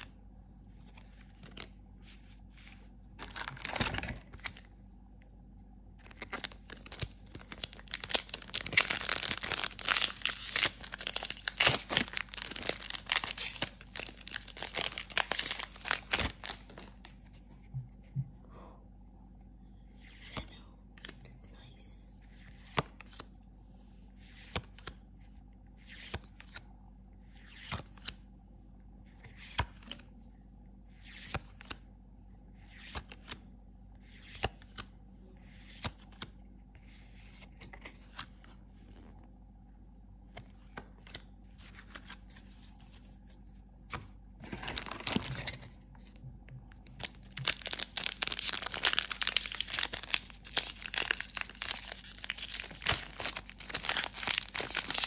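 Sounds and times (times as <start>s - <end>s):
foil wrapper crinkling and tearing: 6.0s - 17.0s, 46.8s - 55.0s.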